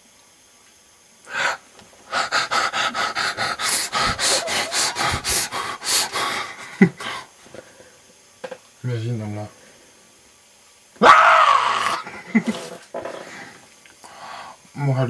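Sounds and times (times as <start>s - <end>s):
person panting: 1.3s - 7.4s.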